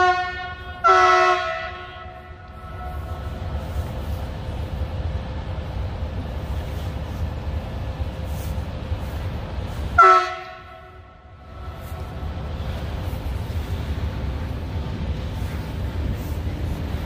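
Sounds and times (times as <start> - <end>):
locomotive horn blast: 0.0 - 3.4, 9.9 - 12.0
steady low rumble: 0.0 - 17.0.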